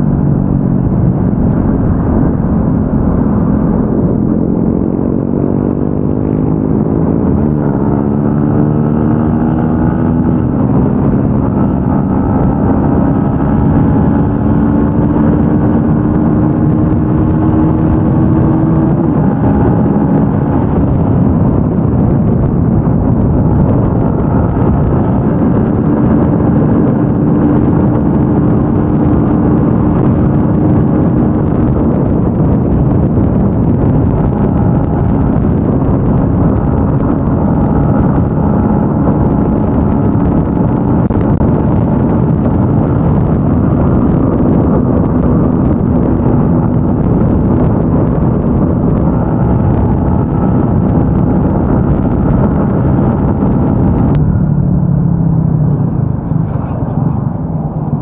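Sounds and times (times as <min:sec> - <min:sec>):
motorcycle engine running: 0:00.0 - 0:58.0
wind rushing: 0:00.0 - 0:58.0.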